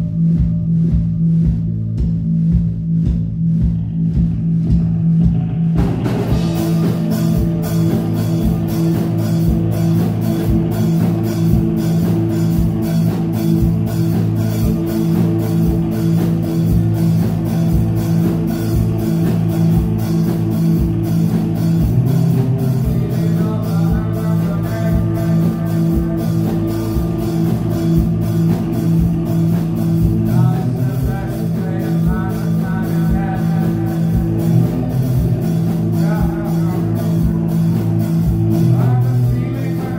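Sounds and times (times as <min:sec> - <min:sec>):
drum kit beat: 0:00.0 - 0:39.9
electric guitars: 0:03.6 - 0:39.9
person singing: 0:22.2 - 0:27.7, 0:30.2 - 0:39.9.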